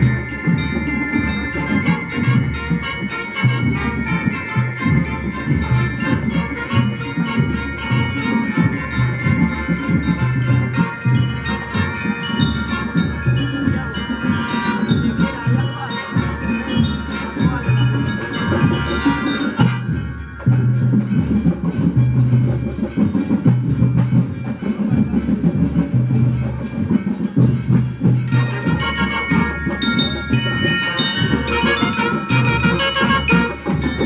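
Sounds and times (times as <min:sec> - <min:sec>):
bell-lyre notes: 0:00.0 - 0:34.0
drums beating: 0:00.0 - 0:34.0
brass playing a tune: 0:01.6 - 0:20.2, 0:28.3 - 0:34.0.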